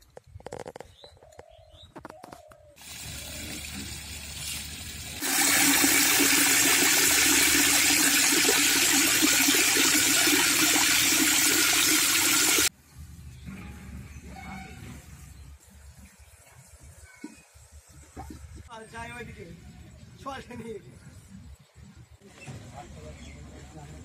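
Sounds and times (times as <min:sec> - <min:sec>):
tap water splashing into bucket: 0:02.8 - 0:12.7.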